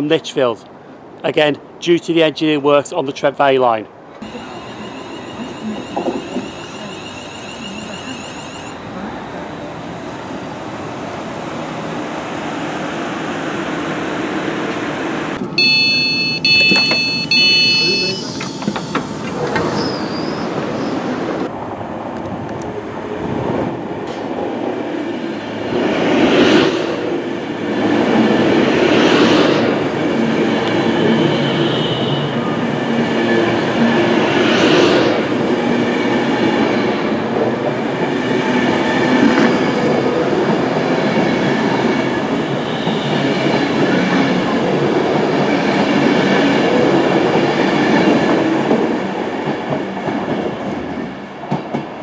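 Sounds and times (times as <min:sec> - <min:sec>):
train wheel and rail noise: 0:03.9 - 0:52.0
clickety-clack over rail joints: 0:18.3 - 0:20.8, 0:37.3 - 0:44.4, 0:45.1 - 0:52.0.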